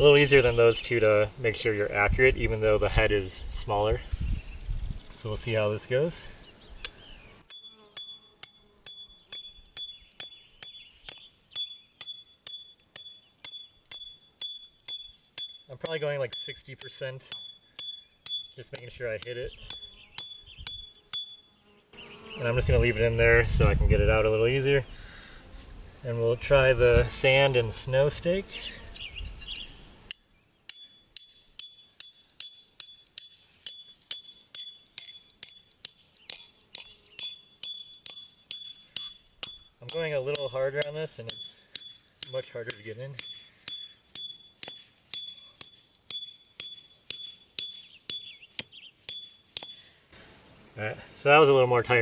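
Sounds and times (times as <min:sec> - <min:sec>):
hammer striking steel stake: 0:07.4 - 0:21.4, 0:30.7 - 0:49.9.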